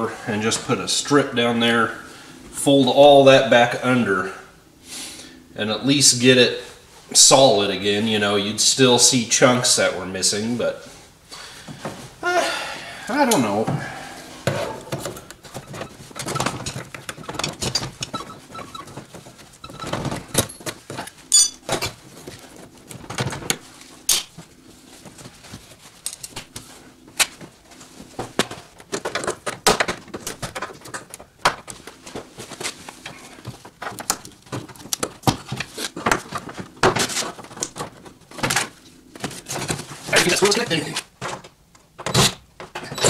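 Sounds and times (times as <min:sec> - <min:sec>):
metallic clinks: 0:21.3 - 0:21.6
clicks and knocks of tools: 0:26.0 - 0:26.5.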